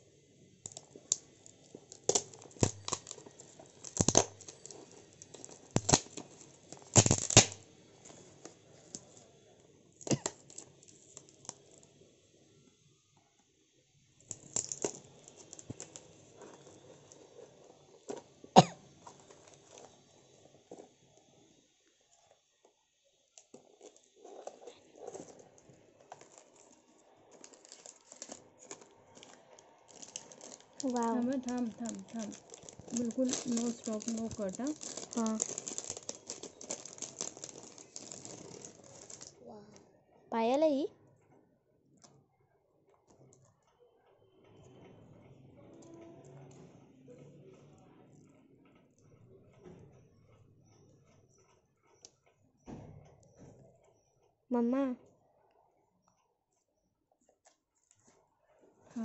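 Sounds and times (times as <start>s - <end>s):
paper wrapping tearing and crinkling: 0.7s - 9.1s, 14.3s - 17.3s, 23.8s - 39.4s.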